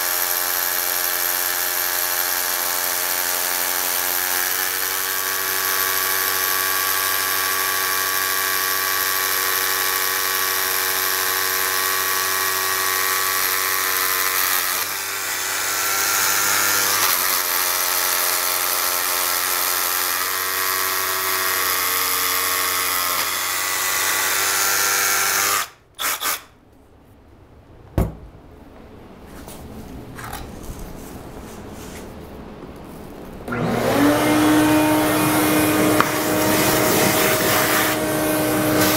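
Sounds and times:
rotary hammer drilling concrete: 0:00.0 - 0:26.5, 0:33.5 - 0:38.9
sharp knock: 0:28.0 - 0:28.3
shop vacuum running: 0:32.9 - 0:38.9.

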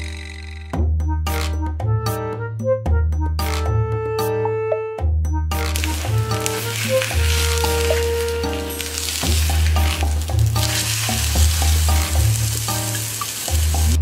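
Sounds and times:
tofu sizzling in a frying pan: 0:05.6 - 0:14.0
music with steady bass line: 0:09.3 - 0:14.0.

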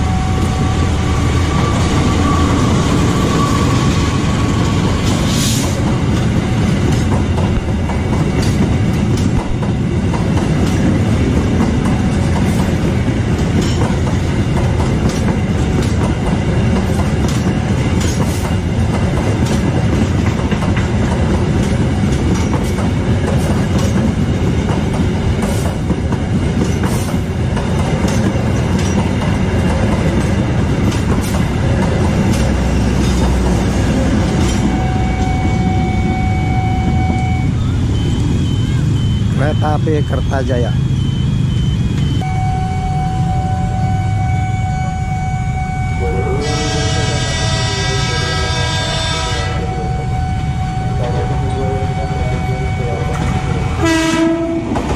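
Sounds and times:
train coaches rumbling past: 0:00.0 - 0:54.9
wheels clicking over rail joints: 0:06.1 - 0:35.3.

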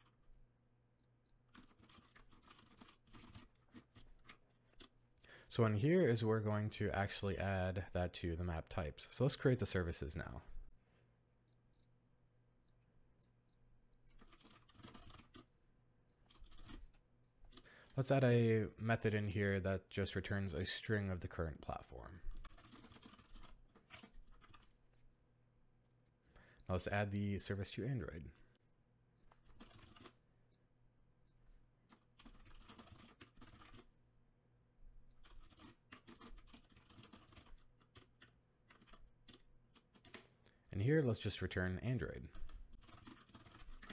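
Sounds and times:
computer mouse clicks: 0:01.0 - 0:05.0, 0:11.4 - 0:11.9, 0:12.6 - 0:15.5, 0:16.1 - 0:18.0, 0:35.0 - 0:40.6
faint keyboard typing: 0:01.0 - 0:06.2, 0:12.6 - 0:25.1, 0:29.2 - 0:30.6, 0:31.2 - 0:34.0, 0:35.0 - 0:43.9.

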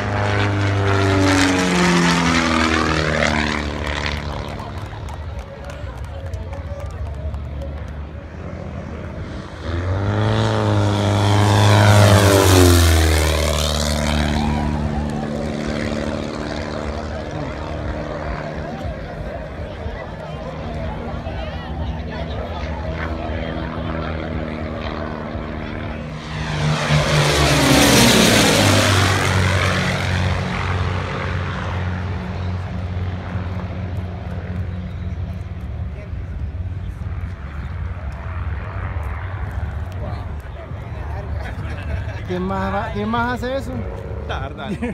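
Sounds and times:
propeller plane engine drone: 0:00.0 - 0:44.9.

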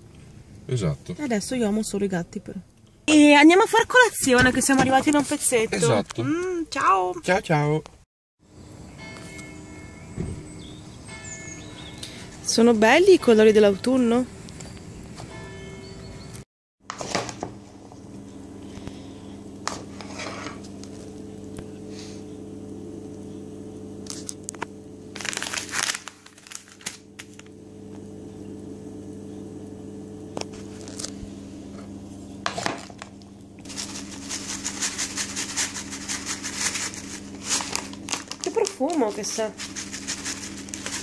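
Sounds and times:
steady low hum: 0:17.5 - 0:41.0
plastic packet crinkling and tearing: 0:24.1 - 0:27.5, 0:33.6 - 0:41.0
potatoes tossed in plastic bowl: 0:33.7 - 0:41.0.

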